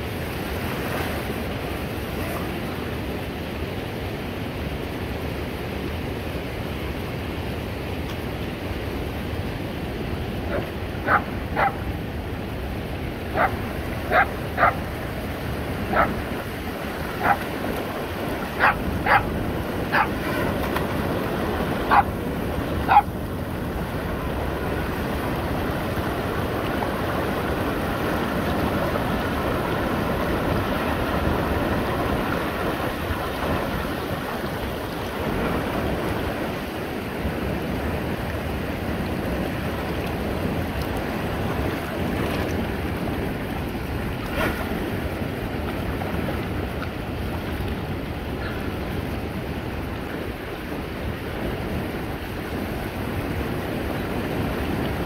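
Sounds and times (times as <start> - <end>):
river water running over rocks: 0.0 - 55.0
dog barking: 10.5 - 11.8, 13.4 - 14.8, 15.9 - 16.2, 17.2 - 17.4, 18.6 - 19.3, 19.9 - 20.2, 21.9 - 22.1, 22.9 - 23.1.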